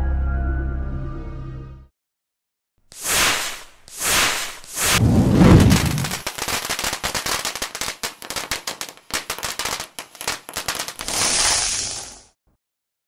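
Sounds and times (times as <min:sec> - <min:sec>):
firecracker crackles: 0:02.9 - 0:12.4
hissing swell: 0:03.0 - 0:06.2.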